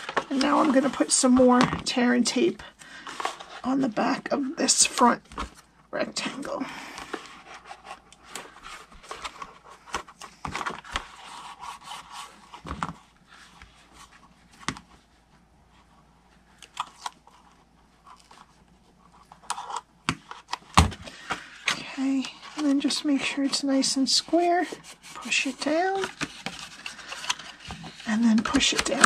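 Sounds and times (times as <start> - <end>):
paper rustling and scraping: 7.0 - 14.7, 20.4 - 29.0.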